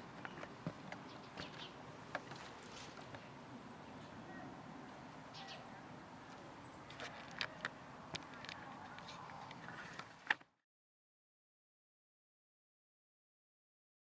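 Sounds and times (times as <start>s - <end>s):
bird chirps: 0.2s - 1.8s, 3.1s - 5.9s.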